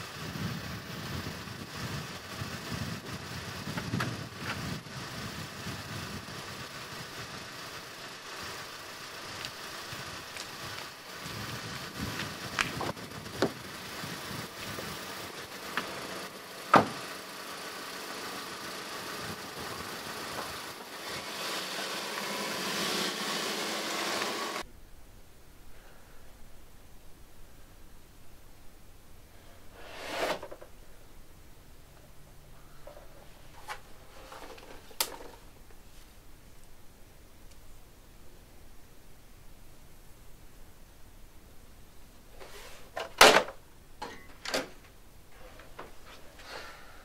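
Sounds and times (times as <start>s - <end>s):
car engine running: 0.1s - 24.6s.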